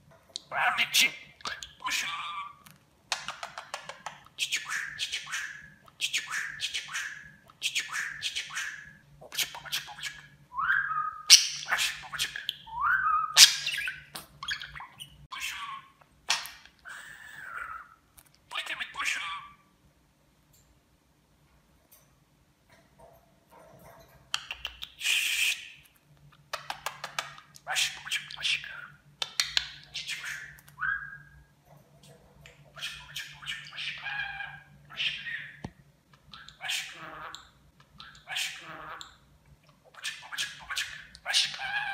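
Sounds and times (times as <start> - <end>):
budgerigar chattering and warbling: 36.3 - 37.4.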